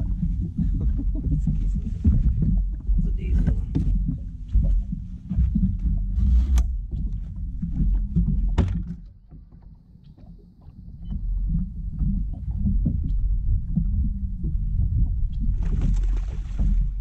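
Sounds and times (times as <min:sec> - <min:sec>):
low uneven rumbling and thumping: 0:00.0 - 0:17.0
sharp knocks on a deck: 0:08.5 - 0:09.1.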